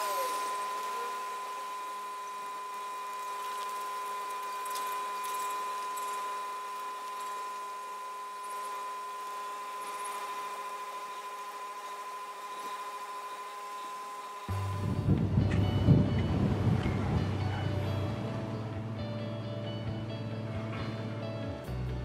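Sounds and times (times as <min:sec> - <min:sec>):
machine hum with high whine: 0:00.0 - 0:22.0.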